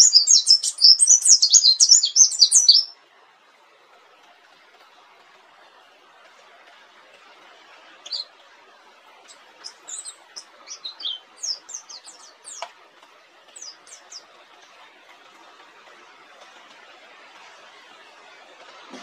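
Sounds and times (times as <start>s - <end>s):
bird chirping: 0.0s - 3.0s, 8.0s - 8.4s, 9.2s - 12.7s, 13.5s - 14.4s
steady hiss: 0.0s - 19.0s.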